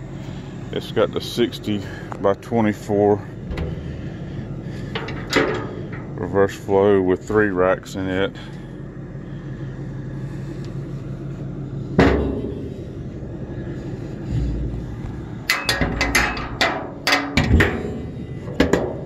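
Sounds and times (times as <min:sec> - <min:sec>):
steady low hum: 0:00.0 - 0:19.0
metal knocks and clicks: 0:03.4 - 0:04.1, 0:04.9 - 0:06.1, 0:15.4 - 0:19.0
dull thump: 0:03.5 - 0:04.1
sharp metal clank: 0:15.5 - 0:18.0.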